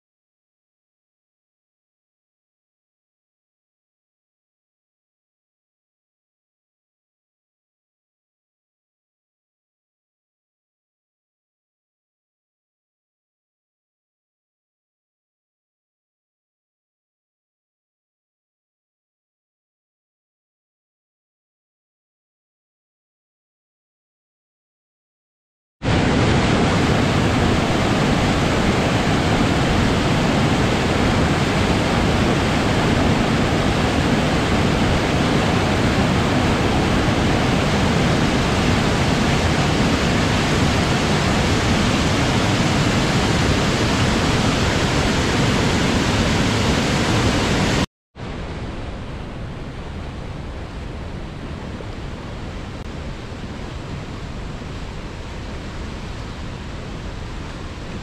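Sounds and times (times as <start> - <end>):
river rapids rushing: 25.8 - 58.0
waterfall rushing over boulders: 25.8 - 58.0.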